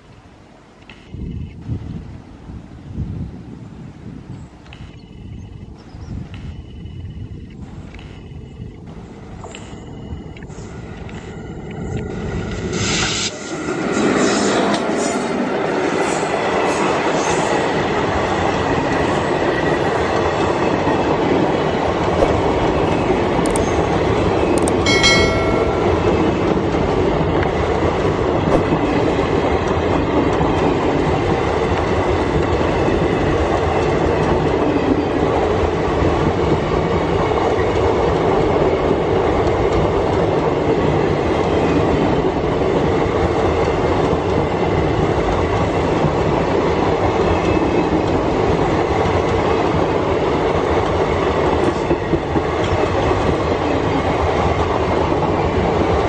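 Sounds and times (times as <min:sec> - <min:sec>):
train rolling past: 0:08.5 - 0:56.0
short high-pitched tone: 0:24.8 - 0:26.6.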